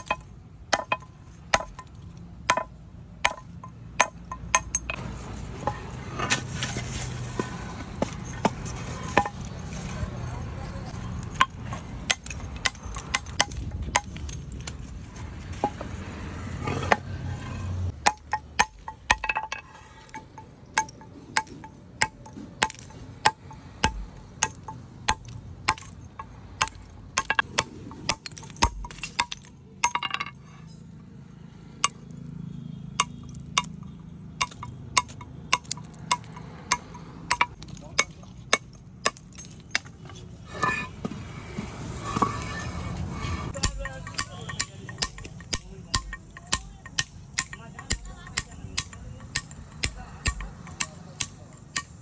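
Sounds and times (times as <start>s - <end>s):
hammer striking chisel on stone: 0.0s - 5.0s, 10.9s - 14.8s, 18.0s - 30.4s, 34.4s - 41.1s, 42.0s - 52.0s.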